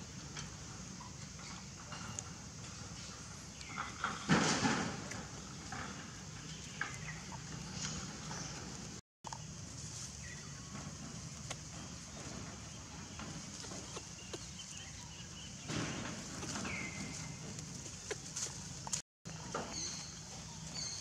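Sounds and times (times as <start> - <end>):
dry leaves rustling: 6.4 - 21.0.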